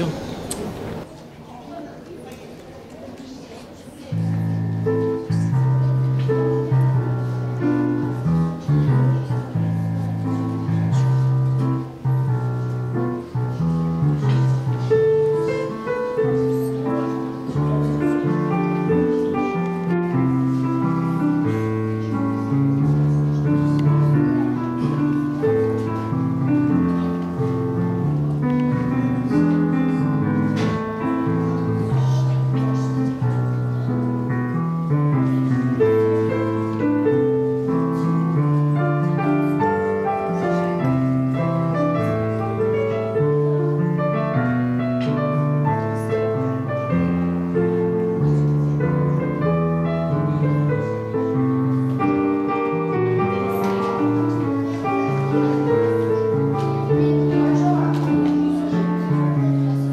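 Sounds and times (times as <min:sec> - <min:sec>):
slow keyboard chords: 0:04.2 - 0:59.9.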